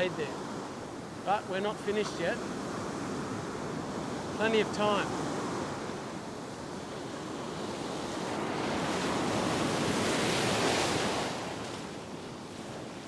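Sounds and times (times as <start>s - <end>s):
wave breaking on beach: 7.1s - 12.2s.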